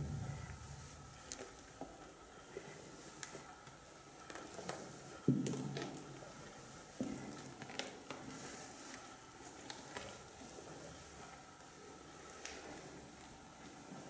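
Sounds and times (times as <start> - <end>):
heavy thuds: 0.0 - 1.2.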